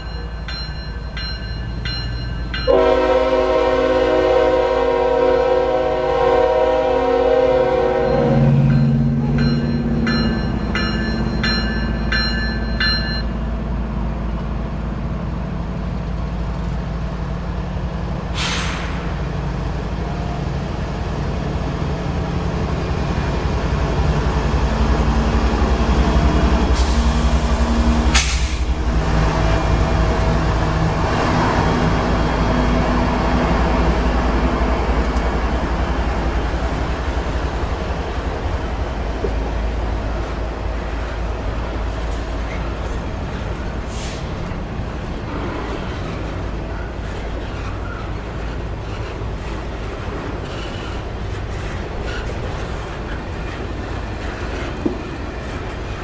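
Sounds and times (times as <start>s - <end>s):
crossing bell ringing: 0.0s - 3.5s, 7.6s - 13.6s
diesel locomotive engines: 0.0s - 56.0s
freight cars rumbling over rails: 0.0s - 56.0s
short hisses: 18.4s - 19.0s.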